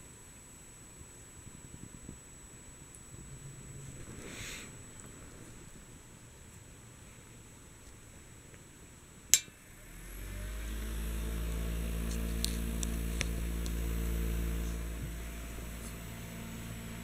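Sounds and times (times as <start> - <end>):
fan switch click: 9.3 - 9.6
desk fan motor whir: 9.6 - 17.0.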